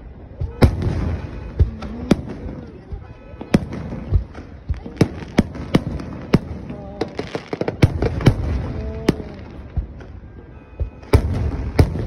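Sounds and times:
fireworks bangs: 0.0 - 12.0
fireworks booms: 0.0 - 12.0
fireworks crackling: 0.0 - 12.0.

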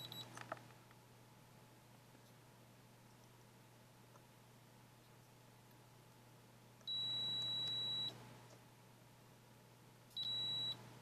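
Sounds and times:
multimeter continuity beeps: 0.0 - 0.3, 6.9 - 8.2, 10.1 - 10.8.

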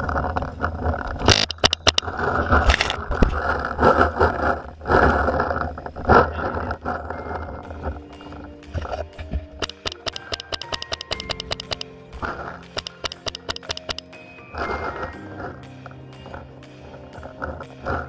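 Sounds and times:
sharp cracks: 0.0 - 14.2
camera scraping against grass: 0.8 - 6.9.

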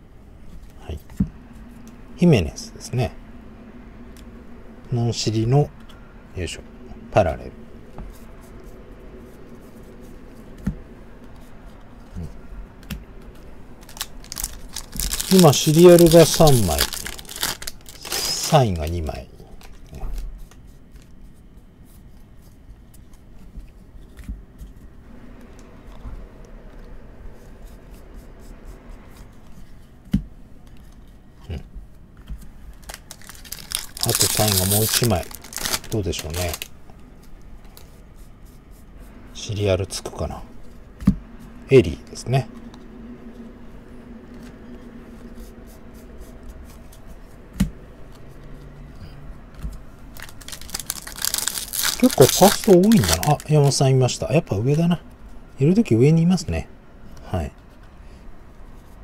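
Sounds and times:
trading cards flipping and clicking: 12.8 - 18.9, 32.2 - 37.9, 49.5 - 53.8
trading cards flipped by hand: 32.3 - 36.6.

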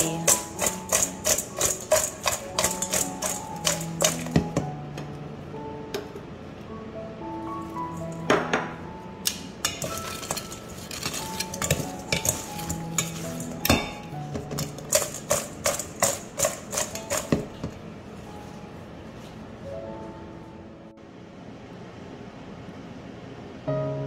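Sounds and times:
metal utensil clinking on dish: 0.0 - 4.4, 9.6 - 17.4
soft background music: 0.0 - 21.3, 23.6 - 24.0.

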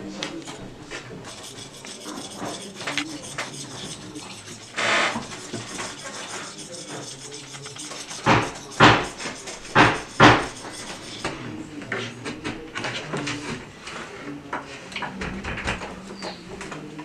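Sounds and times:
wood-carving tool strokes: 0.0 - 11.5.

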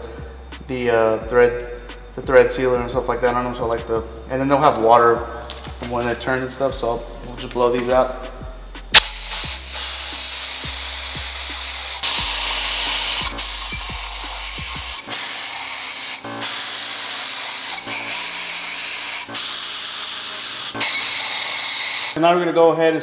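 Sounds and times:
compressed air hissing: 8.0 - 22.2.

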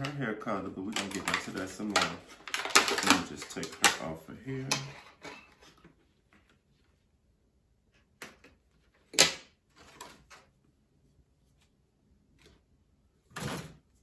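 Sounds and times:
plastic packaging clicks and snaps: 0.9 - 4.1.

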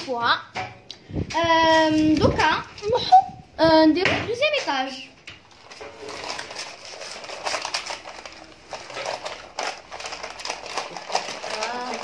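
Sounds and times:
baking paper crinkling: 1.4 - 3.2, 4.4 - 12.0.

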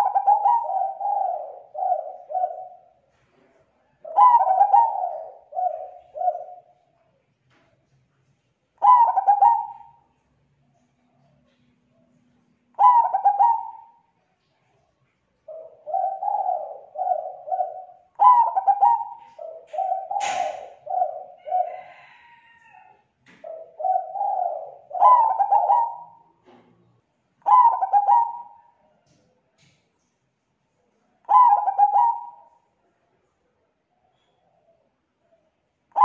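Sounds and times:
dove cooing: 0.0 - 6.9, 8.8 - 10.2, 11.4 - 14.2, 15.4 - 29.0, 31.2 - 32.7.

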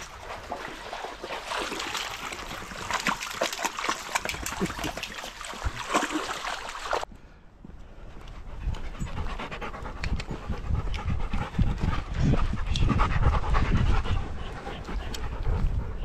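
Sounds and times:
dog panting: 8.2 - 16.0.

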